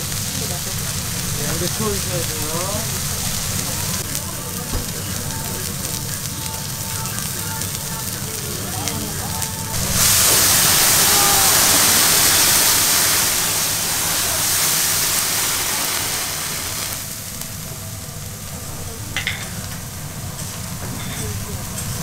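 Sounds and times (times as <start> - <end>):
meat sizzling on griddle: 0.0 - 22.0
rush of flame: 0.0 - 22.0.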